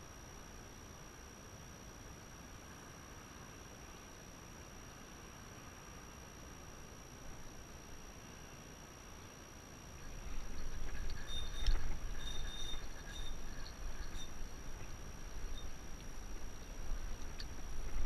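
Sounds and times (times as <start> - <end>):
faint high chirps: 10.0 - 17.7
wind buffeting microphone: 10.1 - 18.0.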